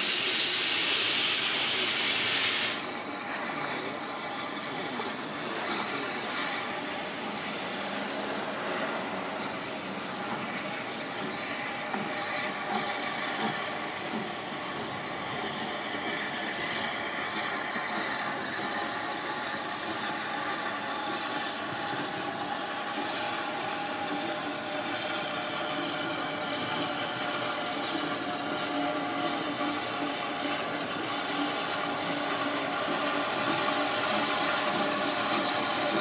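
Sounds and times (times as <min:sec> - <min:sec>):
hiss of steam: 0:00.0 - 0:03.7, 0:07.2 - 0:36.0
steam train running on rails: 0:00.0 - 0:36.0.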